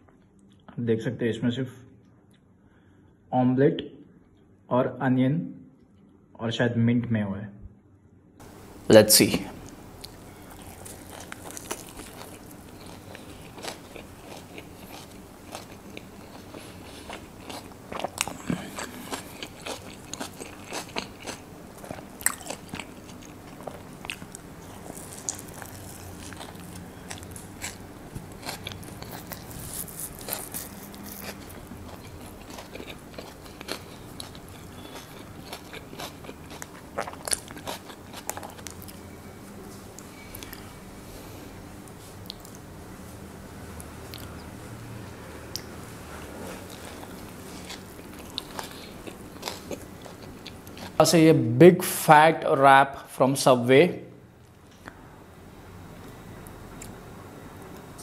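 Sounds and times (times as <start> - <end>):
biting and chewing food: 9.6 - 39.1, 45.5 - 51.0.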